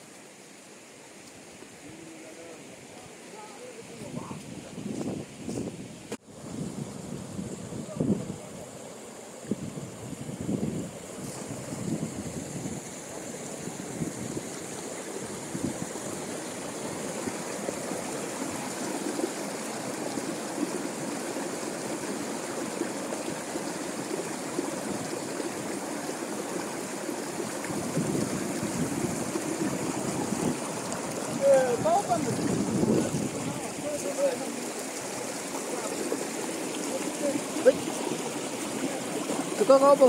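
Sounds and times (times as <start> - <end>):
river rushing over rocks: 10.9 - 40.0.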